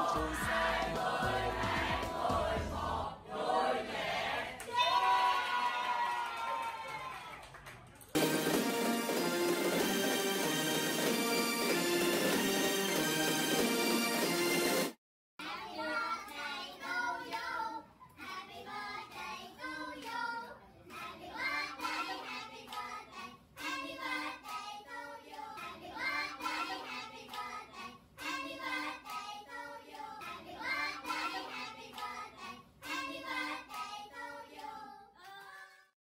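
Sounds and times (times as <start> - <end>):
hands clapping along: 0.0 - 2.4, 6.2 - 13.8, 22.6 - 23.0, 27.2 - 27.6, 31.8 - 34.0
group singing together: 0.0 - 4.6, 15.5 - 35.2.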